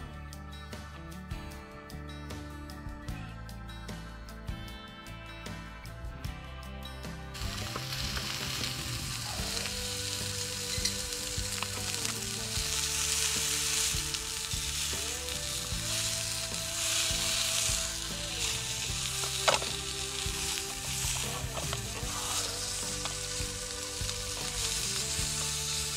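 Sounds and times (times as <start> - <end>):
patty sizzling in frying pan: 7.3 - 25.9.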